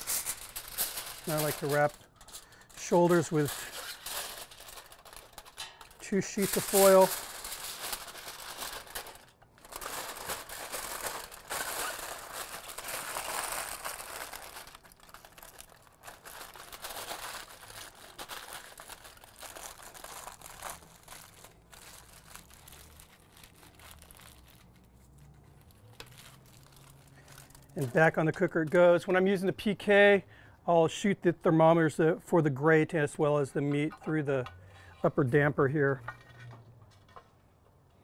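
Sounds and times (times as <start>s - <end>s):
aluminium foil crinkling: 0.0s - 29.4s.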